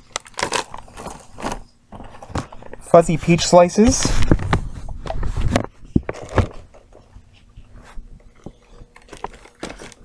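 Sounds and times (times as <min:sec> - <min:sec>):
snack packages knocking and rustling: 0:00.0 - 0:02.8, 0:05.6 - 0:06.9, 0:08.4 - 0:10.0.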